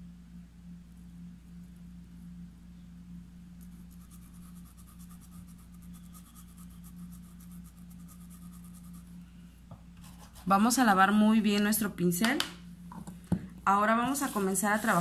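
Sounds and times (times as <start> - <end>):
steady low hum: 0.0 - 15.0
paintbrush scratching on cloth: 3.6 - 9.2, 10.0 - 10.7, 14.1 - 15.0.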